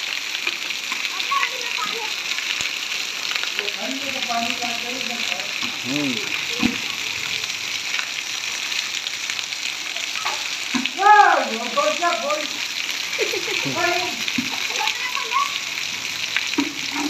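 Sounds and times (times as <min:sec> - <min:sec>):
heavy rain on concrete: 0:00.0 - 0:17.0
voices calling out: 0:03.6 - 0:08.0, 0:09.8 - 0:17.0.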